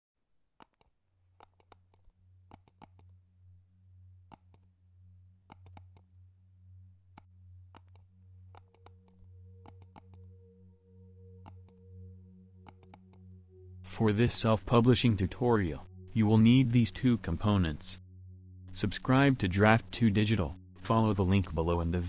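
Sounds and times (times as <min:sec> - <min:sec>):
irregular clicks: 0:00.6 - 0:03.2, 0:04.3 - 0:04.7, 0:05.5 - 0:06.1, 0:07.1 - 0:10.3, 0:11.4 - 0:11.8, 0:12.6 - 0:13.2.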